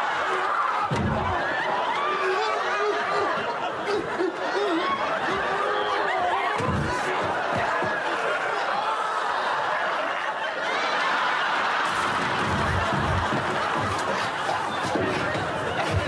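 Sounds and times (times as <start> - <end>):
studio audience laughing: 0.0 - 16.0
dull thumps: 0.9 - 1.6, 6.6 - 8.2, 11.9 - 16.0.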